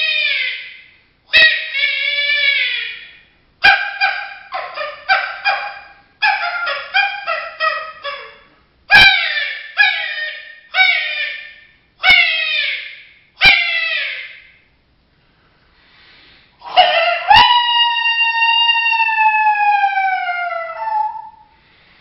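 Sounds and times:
coyote call yips and barks: 0.0 - 14.5, 16.6 - 21.5
coyote call howls: 1.4 - 14.4, 16.6 - 21.5.

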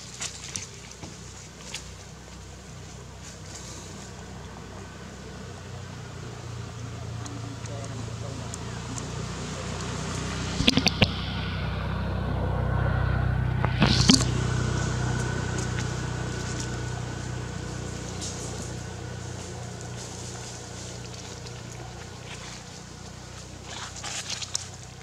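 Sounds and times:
motor vehicle passing: 0.0 - 25.0
sharp clicks: 10.6 - 11.2
brief sharp noise: 13.6 - 14.4.

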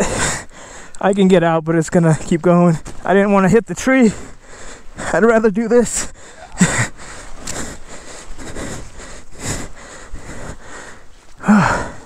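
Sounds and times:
person breathing hard: 0.0 - 1.0, 4.1 - 5.2, 6.0 - 12.0.

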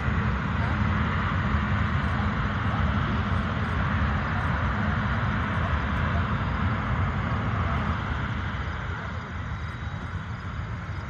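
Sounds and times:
jet engines running: 0.0 - 11.0.

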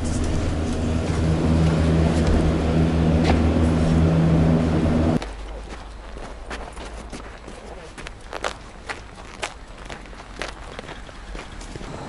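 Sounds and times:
cable car machinery humming: 0.0 - 5.2
outdoor ambience: 0.0 - 12.0.

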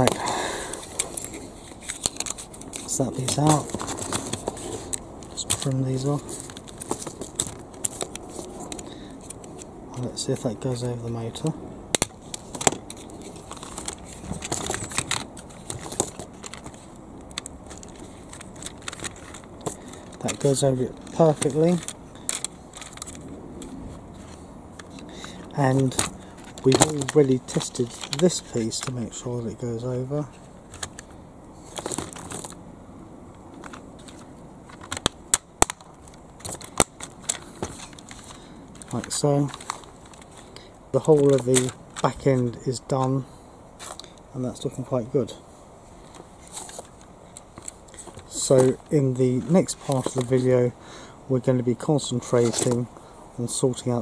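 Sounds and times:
plastic toy parts clicking: 11.9 - 23.7, 24.8 - 29.0, 33.6 - 40.4, 41.0 - 42.2.

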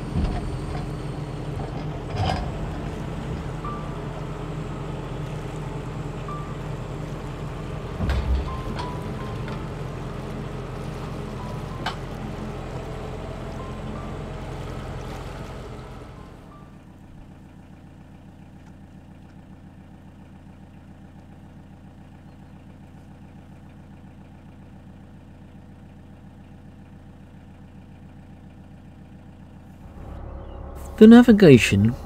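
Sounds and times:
rough machinery noise: 0.0 - 17.3, 29.6 - 32.0
diesel engine chugging: 0.0 - 32.0.

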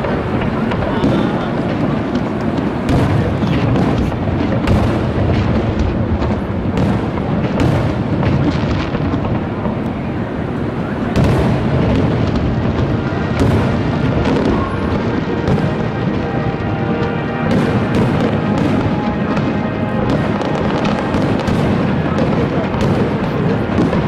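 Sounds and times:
fireworks booming and crackling: 0.0 - 24.0
music playing: 12.9 - 23.9.

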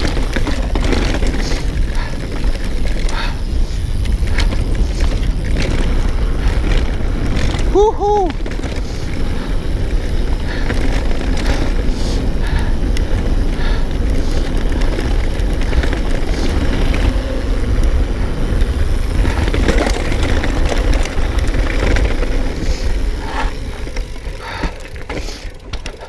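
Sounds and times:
bike rattling over bumps: 0.0 - 26.0
tyres rumbling over dirt: 0.0 - 26.0
wind buffeting microphone: 0.0 - 26.0.

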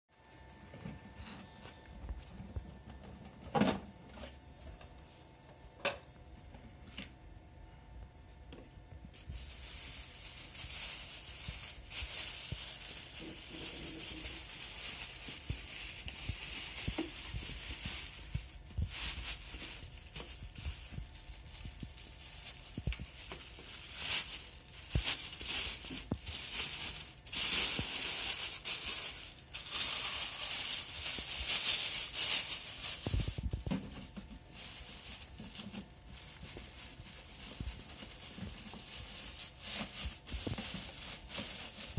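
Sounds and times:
plastic bag rustling and crinkling: 9.0 - 41.9.

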